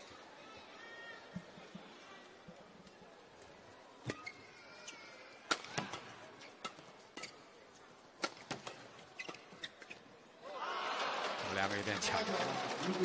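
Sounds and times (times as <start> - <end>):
shoes squeaking on floor: 4.0 - 5.2, 5.8 - 7.5, 8.3 - 10.2
rackets hitting shuttlecock: 5.4 - 7.4, 8.2 - 9.4.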